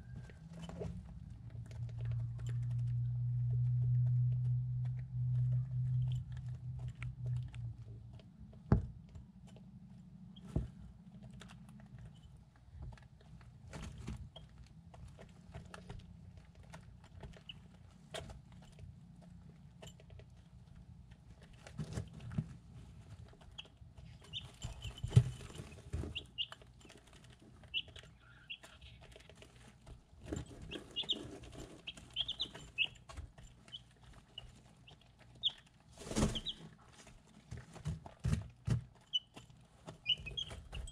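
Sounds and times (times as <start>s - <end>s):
chicks peeping: 23.4s - 37.1s, 39.0s - 40.9s.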